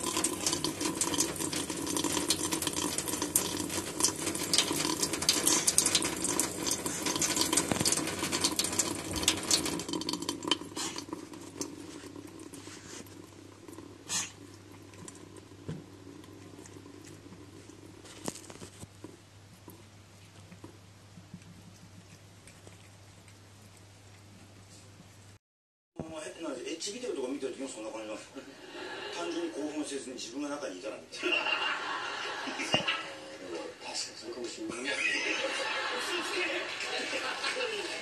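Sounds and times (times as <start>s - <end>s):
tap water running into sink: 0.0s - 17.5s
cat spluttering: 0.0s - 24.6s.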